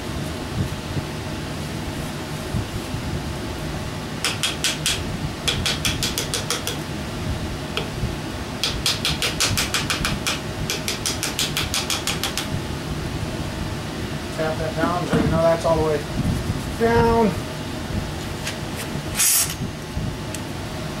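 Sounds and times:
shop fan humming: 0:00.0 - 0:21.0.

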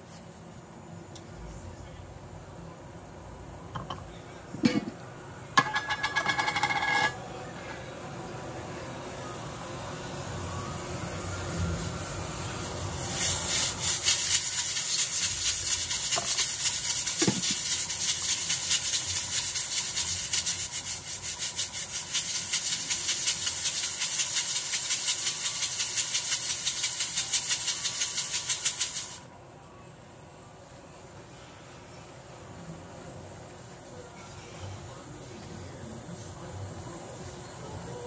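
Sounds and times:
rhythmic hissy scraping: 0:00.0 - 0:29.3, 0:30.1 - 0:38.0.

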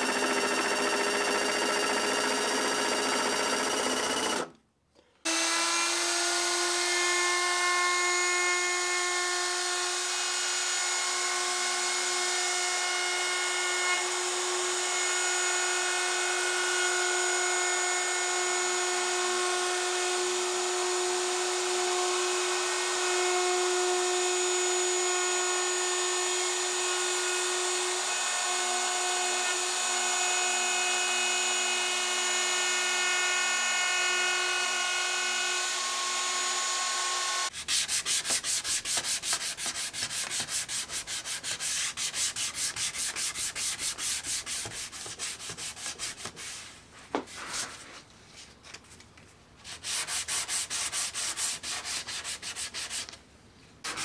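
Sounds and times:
wood router whining: 0:00.0 - 0:04.6, 0:05.3 - 0:37.5
hand sanding wood: 0:37.5 - 0:48.0, 0:49.6 - 0:53.2.

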